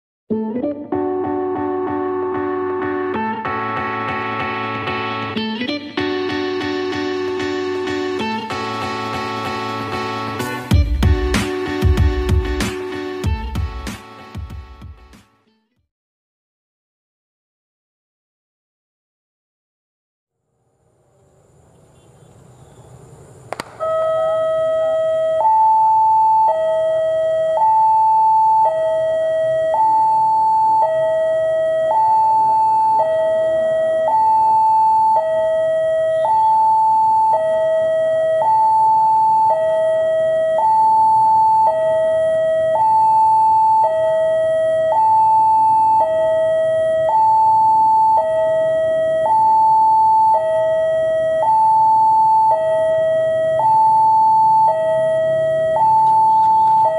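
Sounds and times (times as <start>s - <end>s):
two-tone level-crossing alarm: 23.5s - 56.9s.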